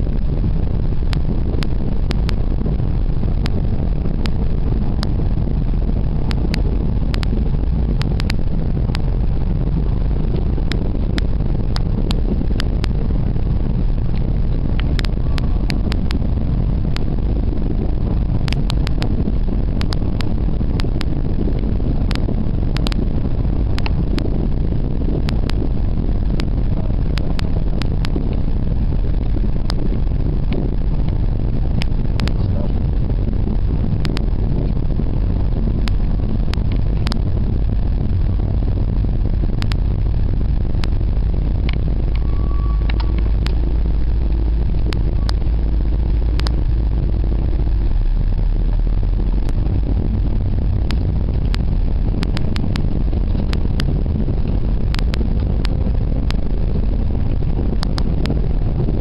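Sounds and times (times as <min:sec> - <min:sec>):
car engine and road noise: 0:00.0 - 0:59.0
sharp clicks: 0:14.1 - 0:16.2, 0:39.4 - 0:40.0, 0:41.6 - 0:47.7, 0:50.8 - 0:56.4.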